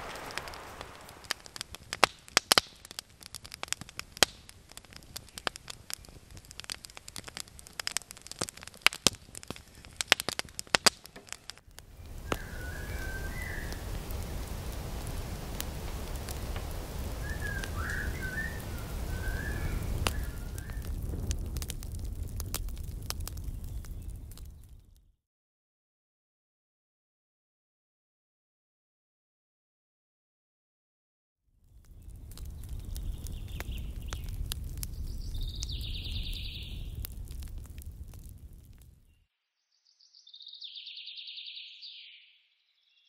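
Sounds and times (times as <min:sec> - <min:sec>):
wood fire crackling and popping: 0:00.0 - 0:25.0, 0:31.6 - 0:39.1
steady low rumble: 0:11.8 - 0:24.6
faint high whistles: 0:12.0 - 0:13.9, 0:17.2 - 0:20.9.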